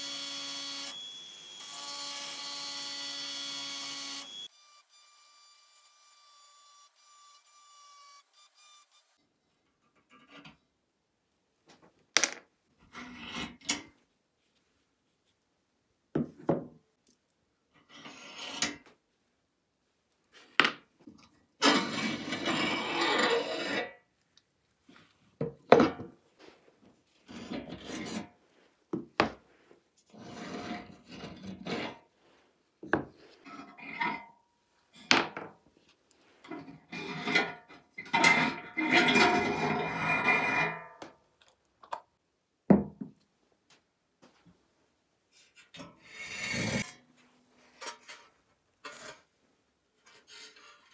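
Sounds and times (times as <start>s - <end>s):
rusty metal scraping: 36.5s - 40.8s.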